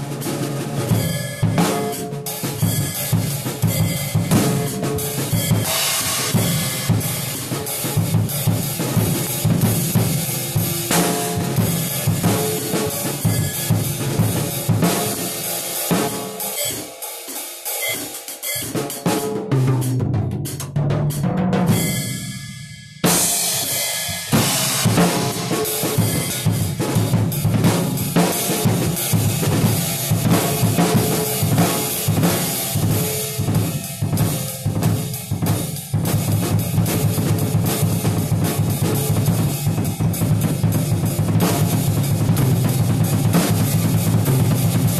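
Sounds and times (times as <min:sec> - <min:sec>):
drum kit playing a beat: 0:00.0 - 0:44.9
cymbal crash: 0:00.9 - 0:18.7, 0:21.8 - 0:35.1.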